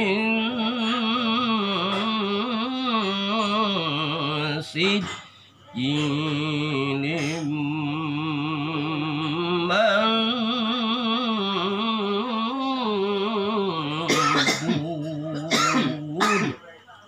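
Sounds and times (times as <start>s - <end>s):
man chanting melodically: 0.0s - 16.6s.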